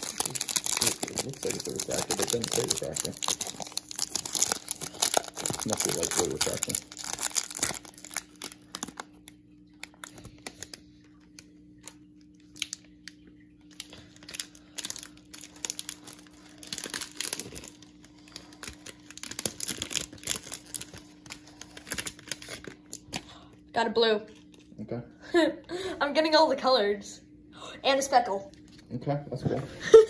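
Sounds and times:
foil wrapper crinkling: 0:00.0 - 0:23.4
faint low hum: 0:00.0 - 0:30.0.

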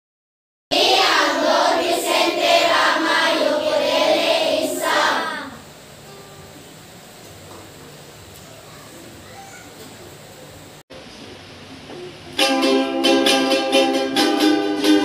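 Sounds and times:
children's voices in unison: 0:00.7 - 0:05.7.

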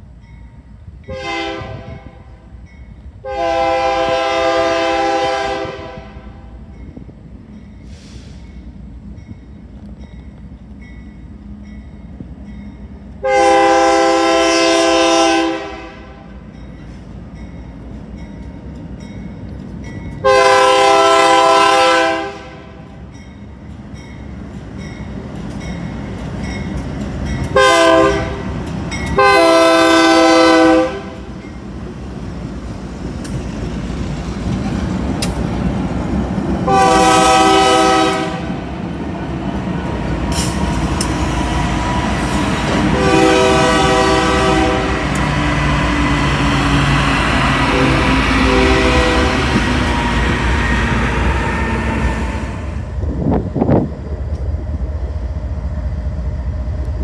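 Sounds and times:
diesel locomotive engines rumbling: 0:00.0 - 0:57.0
train air horn blasts: 0:01.1 - 0:02.4, 0:03.2 - 0:06.6, 0:13.2 - 0:16.4, 0:20.2 - 0:23.0, 0:27.5 - 0:28.6, 0:29.2 - 0:31.3, 0:36.6 - 0:38.6, 0:42.2 - 0:52.8.

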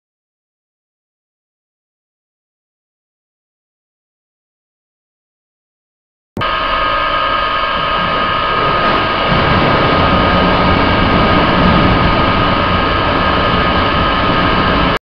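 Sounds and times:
machine hum with high whine: 0:06.4 - 0:15.0
water rushing down a channel: 0:06.5 - 0:15.0.

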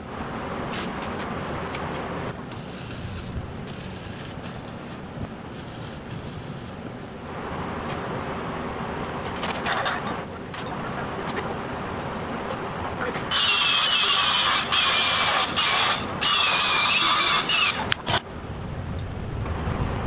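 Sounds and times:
angle grinder cutting steel: 0:13.3 - 0:18.2.

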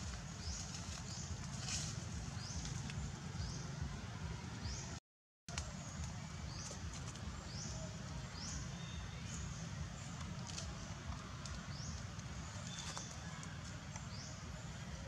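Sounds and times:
dry leaves rustling: 0:00.0 - 0:03.4, 0:08.5 - 0:13.9
steady low rumble: 0:00.0 - 0:05.0.

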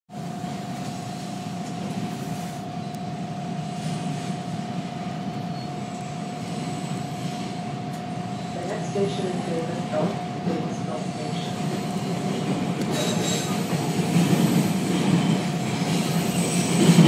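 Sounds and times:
subway train humming: 0:00.1 - 0:17.0.

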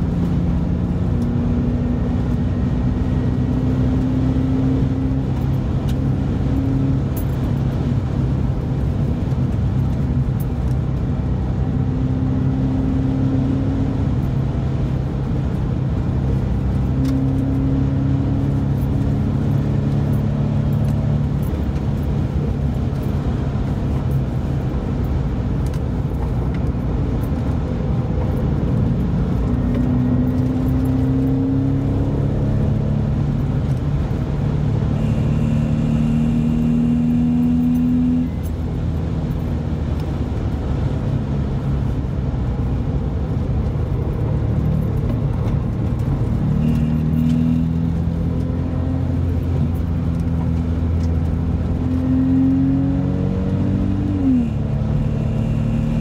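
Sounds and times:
car engine accelerating: 0:00.0 - 0:56.0
tyre and road noise: 0:00.0 - 0:56.0.

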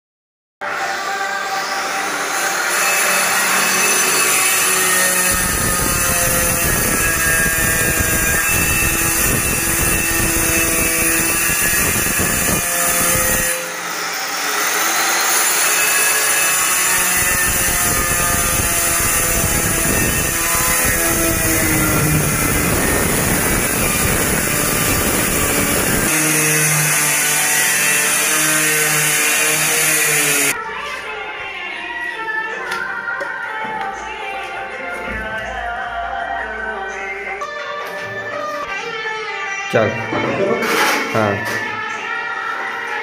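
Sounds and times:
electric tile cutter grinding tile: 0:00.6 - 0:30.6.

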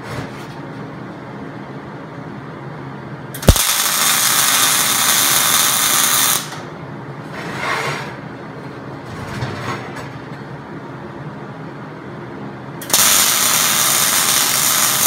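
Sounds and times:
arc welding crackling: 0:03.4 - 0:06.6, 0:12.8 - 0:15.0.

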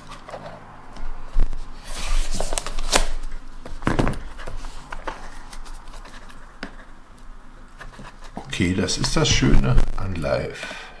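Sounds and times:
knife slitting plastic film: 0:02.3 - 0:03.2.

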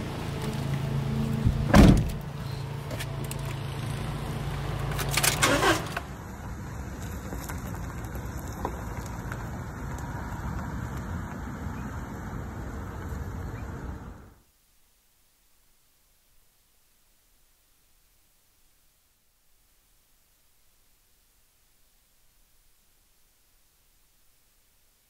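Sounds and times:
door slamming: 0:01.4 - 0:02.2
quiet steady background: 0:06.0 - 0:25.0.

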